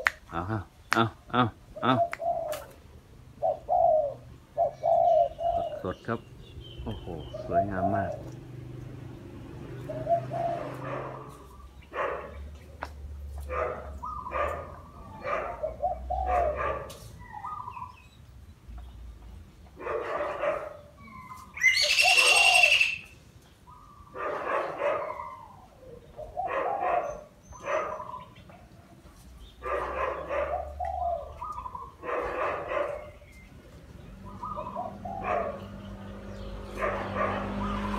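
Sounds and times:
dove cooing: 1.6s - 6.2s, 6.9s - 8.6s, 9.5s - 12.8s, 13.4s - 18.1s, 19.8s - 23.1s, 23.7s - 28.8s, 29.6s - 33.4s, 34.0s - 37.9s
loud high-pitched bird call: 21.0s - 23.2s.

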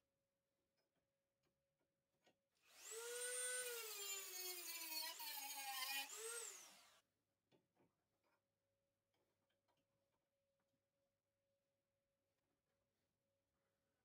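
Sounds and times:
rotary tool cutting metal: 2.7s - 7.0s.

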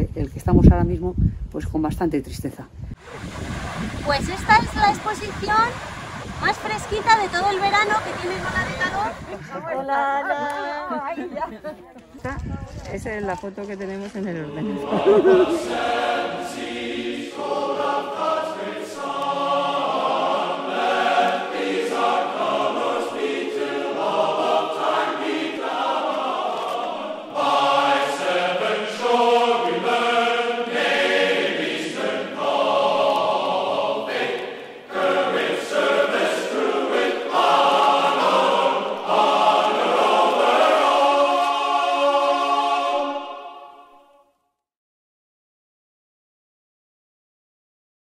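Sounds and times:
choir singing held chords: 3.0s - 10.9s, 14.5s - 44.4s.

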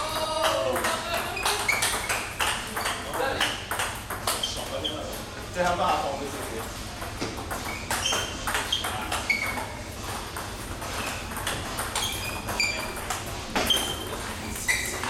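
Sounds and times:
table tennis balls clicking: 0.0s - 5.3s, 5.9s - 15.0s.

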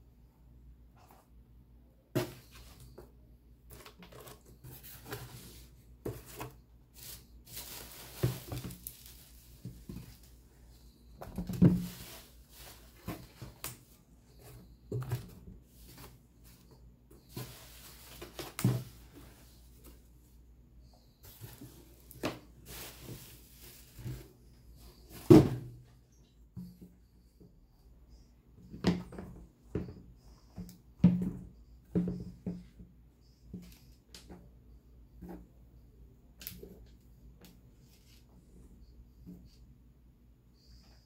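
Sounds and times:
bubble wrap and cardboard rustling: 3.7s - 20.3s, 21.2s - 25.7s.

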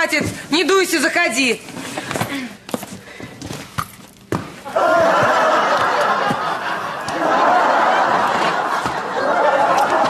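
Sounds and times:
audience laughing: 4.7s - 10.0s.

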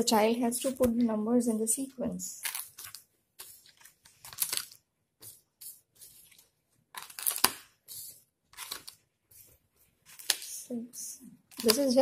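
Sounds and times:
cards pressed onto velcro: 6.9s - 7.8s.

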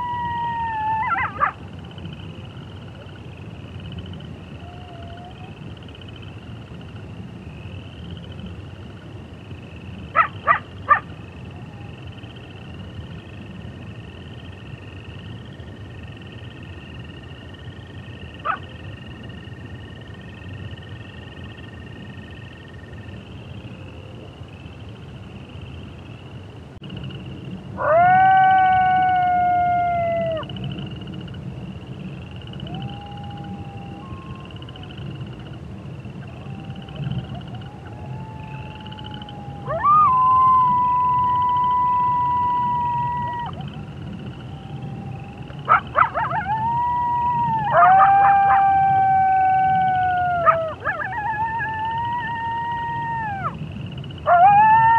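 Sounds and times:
coyote howling: 0.0s - 1.6s, 4.6s - 5.6s, 27.8s - 30.6s, 32.5s - 35.4s, 36.2s - 54.9s
coyote yip: 0.0s - 1.6s, 10.1s - 11.9s, 18.4s - 18.7s, 45.6s - 46.8s
frogs trilling in chorus: 9.5s - 24.8s, 27.8s - 54.9s.

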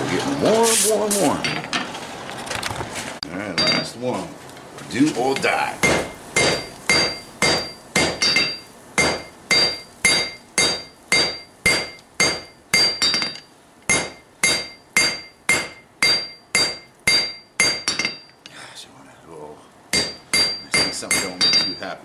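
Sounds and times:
hammer striking hot steel on anvil: 3.6s - 4.0s, 5.2s - 18.4s, 19.9s - 21.9s.

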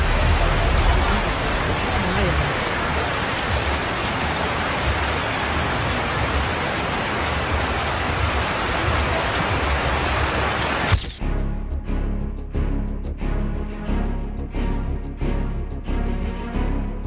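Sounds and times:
rain-like hiss: 0.0s - 11.2s.

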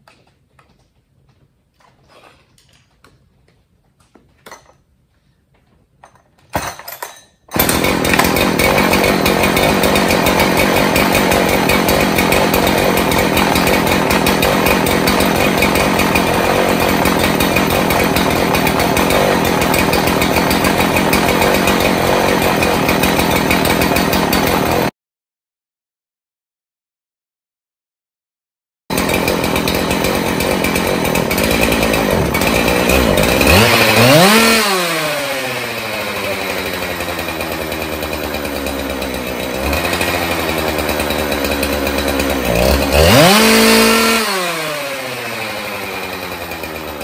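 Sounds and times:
chainsaw running: 7.5s - 24.9s, 28.9s - 47.0s.

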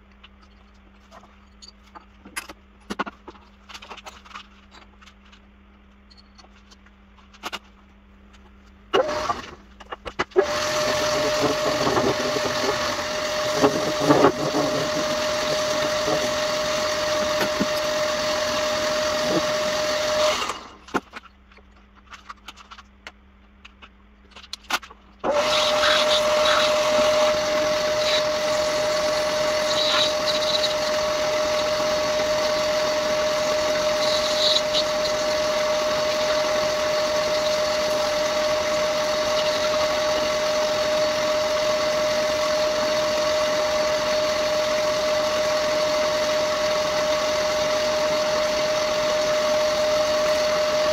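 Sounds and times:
metal lathe whining: 10.4s - 20.8s, 25.2s - 50.9s.

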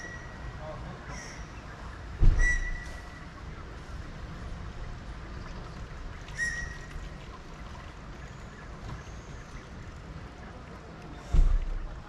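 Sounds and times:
low city rumble: 0.0s - 12.0s
low thump: 2.2s - 2.7s, 11.3s - 11.8s.

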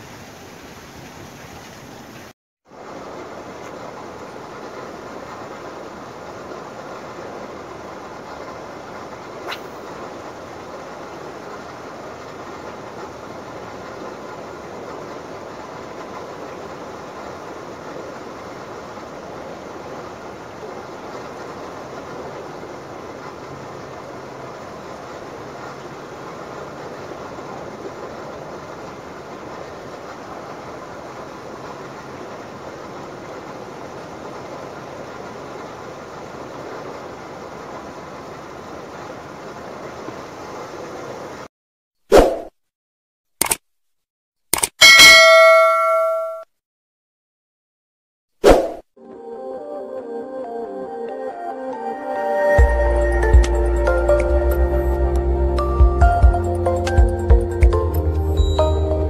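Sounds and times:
sea rushing: 0.0s - 41.5s
fishing rod swishing: 9.4s - 9.9s, 42.1s - 42.5s, 48.4s - 48.8s.

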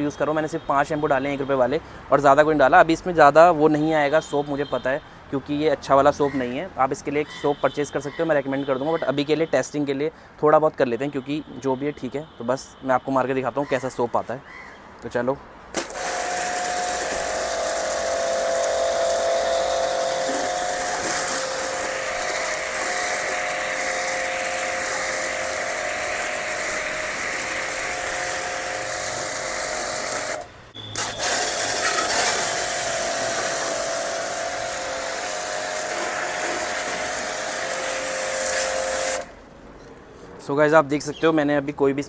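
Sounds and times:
spray hissing: 15.8s - 39.3s
pressure washer motor whining: 15.8s - 39.4s.

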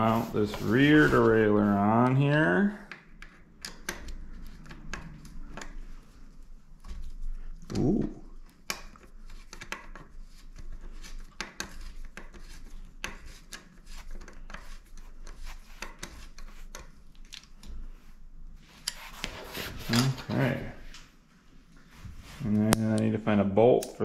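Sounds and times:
metal clicks and taps of a tool: 2.9s - 5.7s.

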